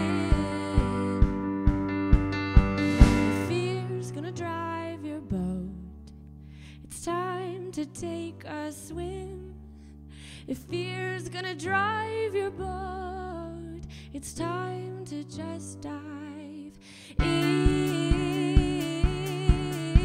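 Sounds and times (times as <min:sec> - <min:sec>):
woman singing with vibrato: 0:00.0 - 0:01.9, 0:02.9 - 0:05.9, 0:10.5 - 0:20.0
electric keyboard chords: 0:00.0 - 0:04.8, 0:17.2 - 0:20.0.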